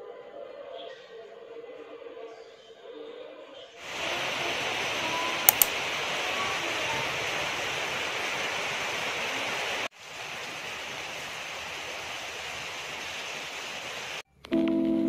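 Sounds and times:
rain hiss: 3.8s - 14.2s
sharp clicks: 5.5s - 5.8s.

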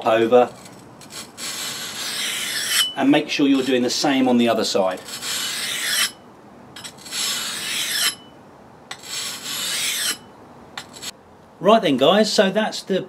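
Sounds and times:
axe scraping on whetstone: 0.0s - 6.2s, 6.8s - 8.3s, 8.9s - 11.1s.

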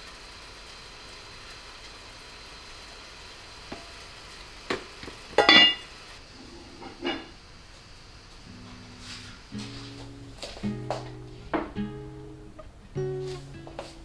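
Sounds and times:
steady low hiss: 0.0s - 14.0s
metal pot lid clanking: 5.3s - 5.9s.

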